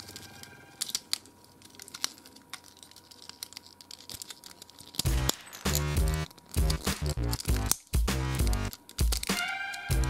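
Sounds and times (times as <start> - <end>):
plastic toy clicks and rattles: 0.0 - 10.0
loud music: 5.1 - 10.0.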